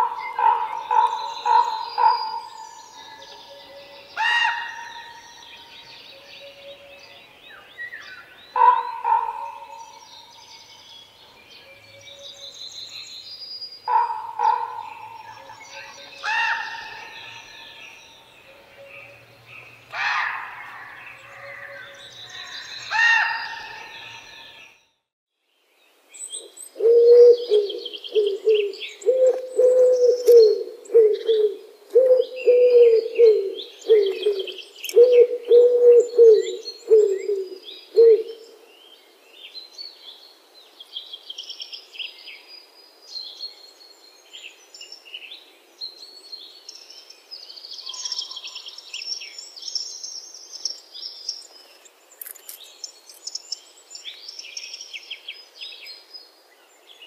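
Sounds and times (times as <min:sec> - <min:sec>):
pigeon cooing: 0:26.8 - 0:38.4.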